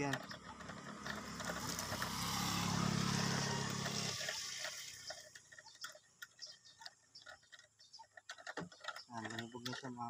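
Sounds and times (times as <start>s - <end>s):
vehicle engine passing: 0.2s - 5.2s.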